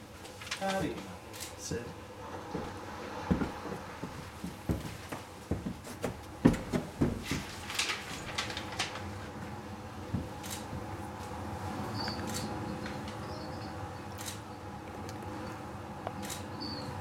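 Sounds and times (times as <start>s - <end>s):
paper rustling: 0.2s - 1.1s, 6.7s - 9.4s
footsteps on wooden floor: 2.4s - 7.6s, 10.1s - 10.8s.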